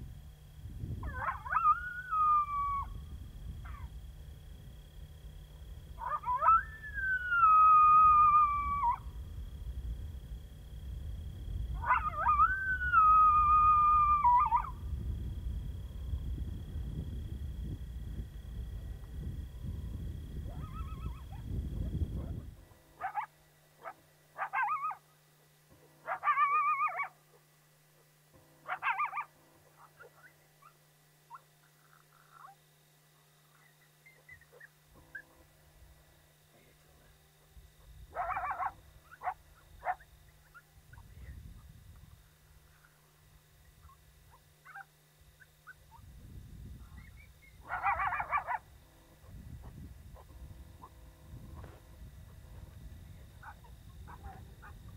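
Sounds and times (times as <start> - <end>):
low rumbling noise: 0.0 - 23.0, 45.8 - 54.9
whimpering canine distress calls: 1.0 - 2.9, 6.0 - 9.0, 20.5 - 21.4, 24.4 - 25.0, 26.1 - 27.1, 28.7 - 32.6, 33.6 - 35.4
coyote howling: 1.0 - 4.0, 6.0 - 9.3, 11.7 - 15.0, 20.4 - 25.0, 26.0 - 27.2, 28.7 - 32.6, 38.1 - 41.3, 43.7 - 46.2, 46.8 - 51.0.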